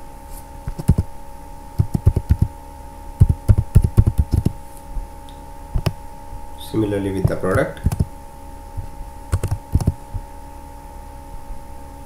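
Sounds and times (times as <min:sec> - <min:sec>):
faint steady hum: 0:00.0 - 0:12.0
typing on computer keyboard: 0:00.7 - 0:01.0, 0:01.8 - 0:02.5, 0:03.2 - 0:04.6, 0:07.8 - 0:08.1, 0:09.3 - 0:10.0.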